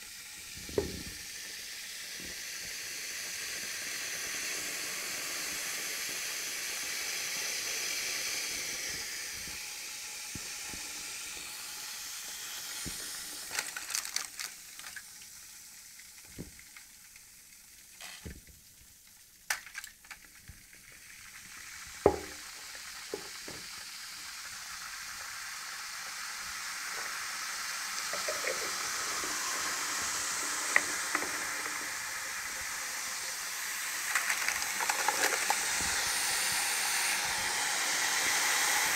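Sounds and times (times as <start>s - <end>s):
chemical reaction fizzing: 0.0s - 38.9s
sharp pops and clicks: 22.0s - 22.5s.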